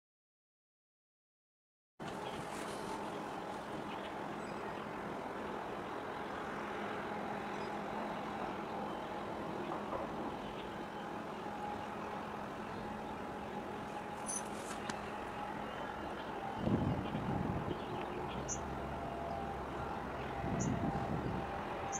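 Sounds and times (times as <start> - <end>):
distant engines and machinery hum: 2.0 - 21.9.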